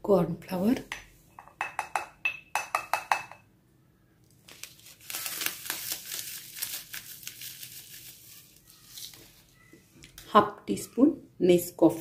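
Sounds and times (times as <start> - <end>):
sachet crinkling and tearing: 4.2 - 9.5.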